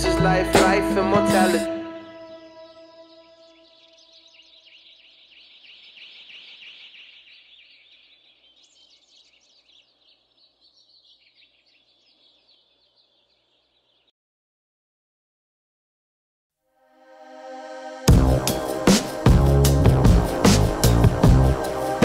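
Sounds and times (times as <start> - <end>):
small birds chirping: 1.6 - 14.1.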